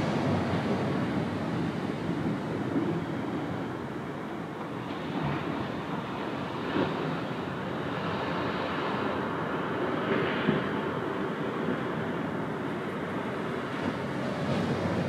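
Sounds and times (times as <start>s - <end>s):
small waves on a beach: 0.0s - 15.0s.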